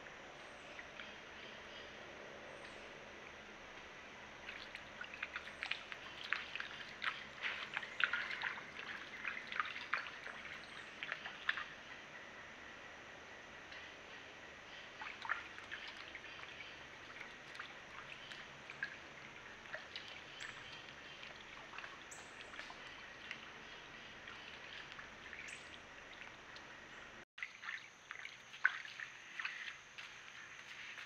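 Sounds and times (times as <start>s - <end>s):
splashing steps in water: 4.4s - 11.7s, 15.0s - 26.8s, 27.4s - 31.0s.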